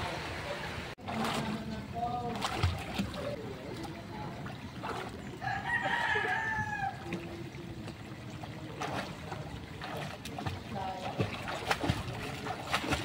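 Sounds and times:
water splashing in pool: 0:00.0 - 0:13.0
rooster crowing: 0:05.4 - 0:07.1.

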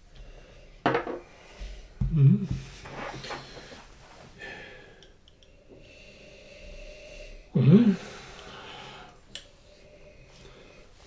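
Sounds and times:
appreciative hum: 0:01.5 - 0:03.7, 0:05.4 - 0:10.8.

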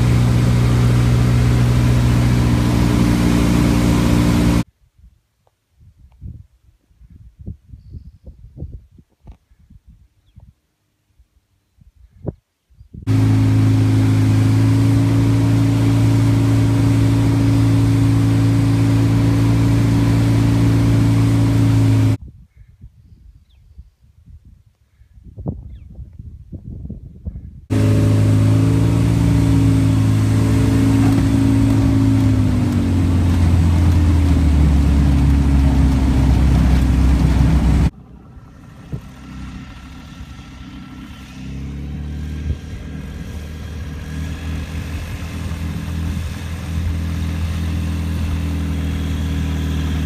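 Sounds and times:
airplane engine and propeller: 0:00.0 - 0:04.6, 0:13.1 - 0:22.2, 0:27.7 - 0:50.0.

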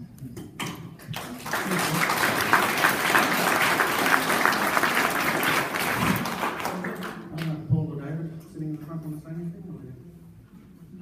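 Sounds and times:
audience applauding: 0:01.0 - 0:07.5.

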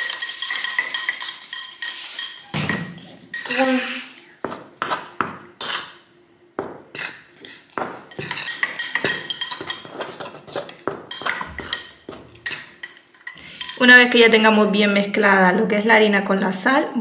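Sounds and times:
spoon clinking in mixing bowl: 0:00.0 - 0:03.9, 0:07.8 - 0:13.8.

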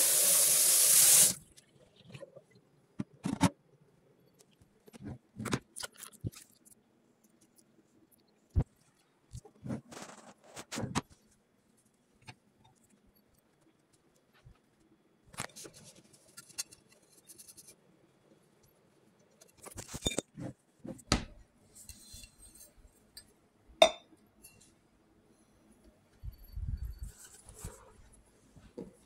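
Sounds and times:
household objects being handled: 0:08.5 - 0:14.7, 0:19.3 - 0:23.2, 0:26.1 - 0:29.0.

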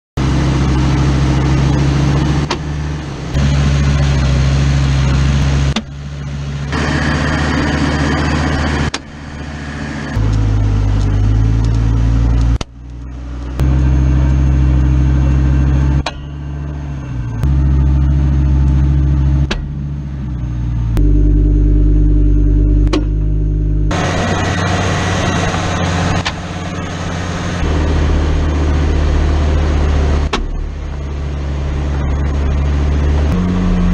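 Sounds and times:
vehicle drivetrain humming: 0:00.2 - 0:33.9.

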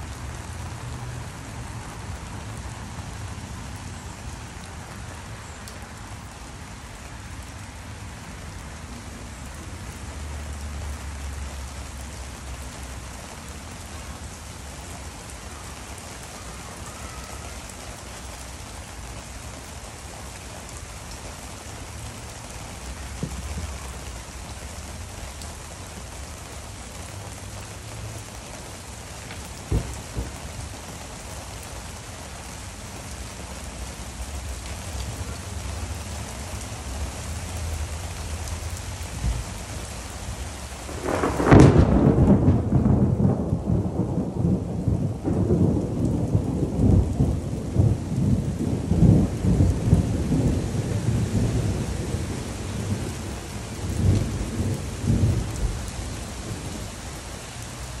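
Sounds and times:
rain hissing: 0:00.0 - 0:58.0
thunder rumbling: 0:29.2 - 0:31.6, 0:40.6 - 0:57.8.

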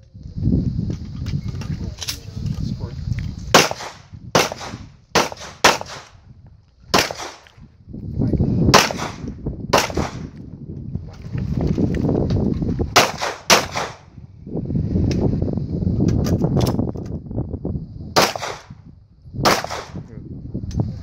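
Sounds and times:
pistol shots: 0:03.5 - 0:06.1, 0:06.9 - 0:07.5, 0:08.7 - 0:10.3, 0:13.0 - 0:14.0, 0:18.2 - 0:18.7, 0:19.4 - 0:20.0.

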